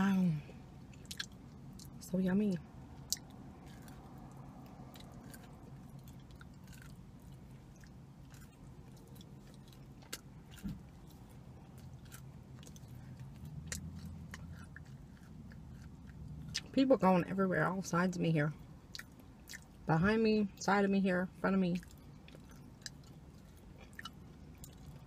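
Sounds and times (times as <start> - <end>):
crunching a crisp cookie: 3.0 - 16.7.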